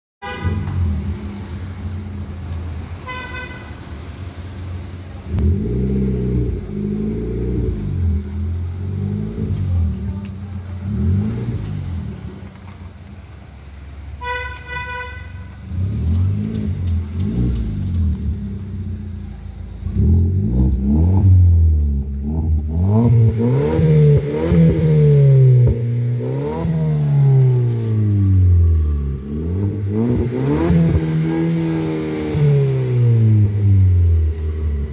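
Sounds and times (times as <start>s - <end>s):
car engine revving: 4.0s - 13.9s, 15.4s - 34.9s.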